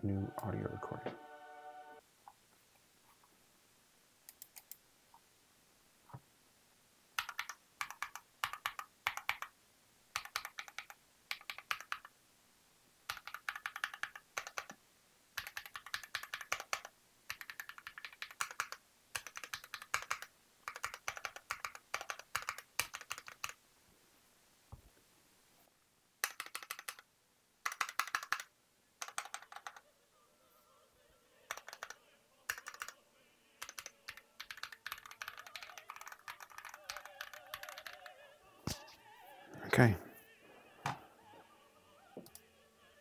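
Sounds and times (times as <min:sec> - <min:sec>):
soft clicks: 0:04.3 - 0:04.8, 0:42.2 - 0:42.5
typing on mechanical keypad: 0:07.2 - 0:09.5, 0:10.2 - 0:12.1, 0:13.1 - 0:14.8, 0:15.4 - 0:23.6, 0:26.2 - 0:29.8, 0:31.5 - 0:33.0, 0:33.6 - 0:38.2.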